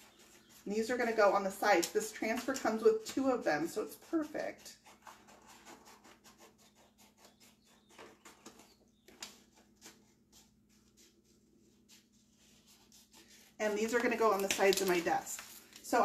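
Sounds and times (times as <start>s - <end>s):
scissors cutting paper: 1.8s - 11.2s, 12.6s - 15.4s
paper rustling: 4.8s - 16.0s.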